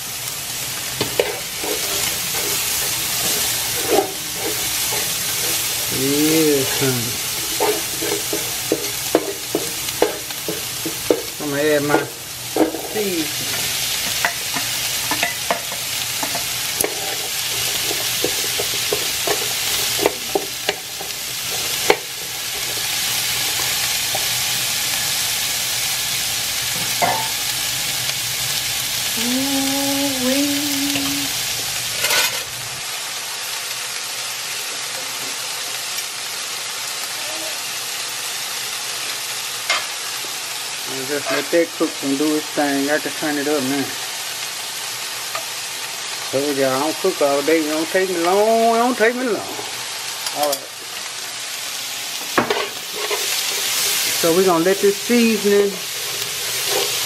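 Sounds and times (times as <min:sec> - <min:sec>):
food sizzling in a frying pan: 0:00.0 - 0:57.0
spoon stirring in a pan: 0:00.9 - 0:06.0, 0:06.6 - 0:24.4, 0:55.5 - 0:57.0.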